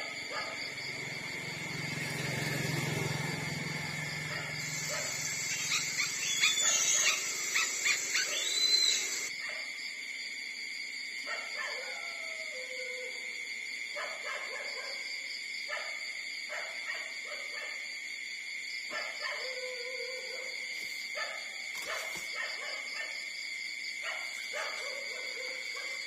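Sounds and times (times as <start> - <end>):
steady high-pitched tone: 4.6 - 9.3.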